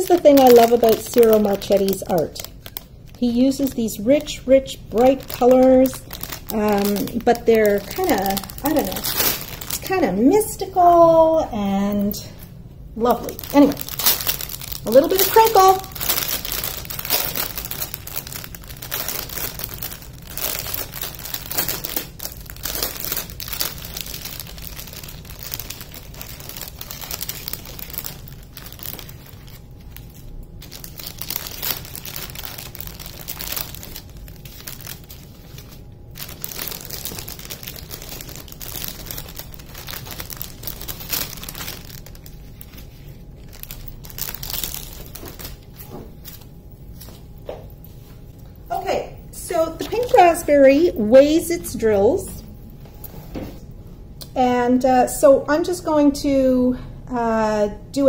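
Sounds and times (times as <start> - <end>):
plastic wrapping crinkling: 0.0 - 53.6.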